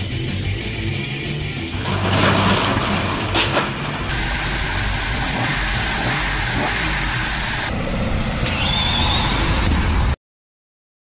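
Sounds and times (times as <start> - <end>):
roller shutter rattling: 1.7 - 6.1
car engine running: 1.7 - 9.0.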